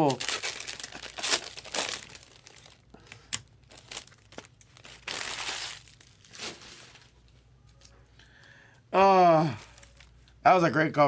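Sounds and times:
plastic wrapping crinkling: 0.0 - 7.9, 9.6 - 10.3.

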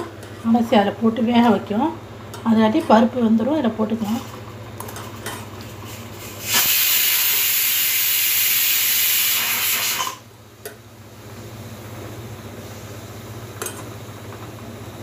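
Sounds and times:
pressure cooker venting steam: 5.8 - 10.2.

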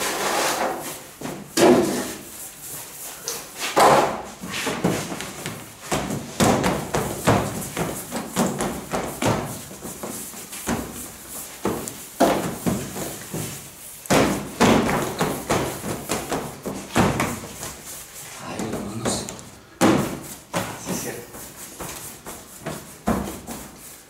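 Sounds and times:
hands thumping bread dough: 3.8 - 17.8.

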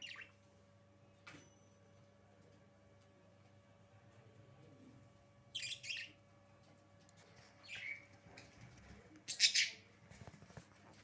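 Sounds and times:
budgerigars chirping: 0.0 - 0.4, 5.5 - 6.2.

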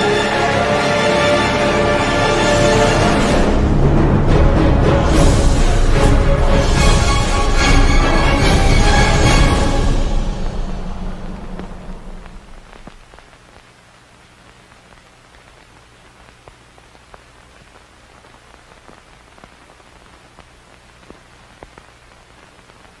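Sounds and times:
music: 0.0 - 12.9
low hum: 0.0 - 17.2
faint steady hiss: 0.0 - 23.0
crackling clicks: 11.3 - 23.0.

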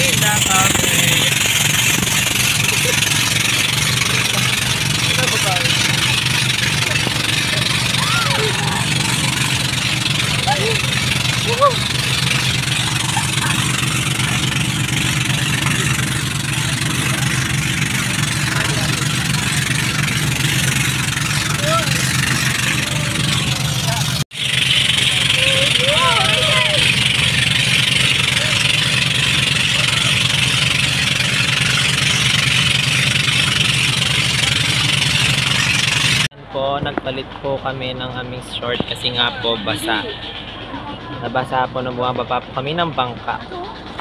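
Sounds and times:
boat engine droning: 0.0 - 44.0.

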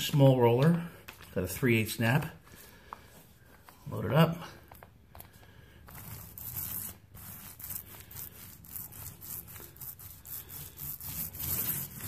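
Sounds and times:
paint roller swishing on wall: 4.7 - 12.0.

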